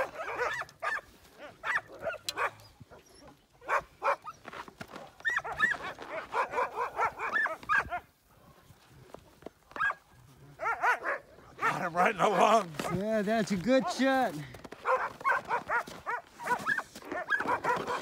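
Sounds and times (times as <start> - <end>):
sled dogs barking and yelping: 0.0 - 18.0.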